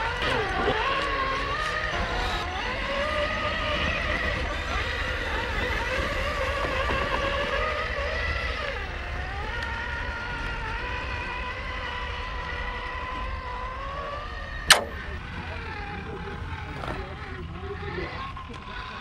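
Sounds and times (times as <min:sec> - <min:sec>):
sharp knock: 0:14.7 - 0:15.1.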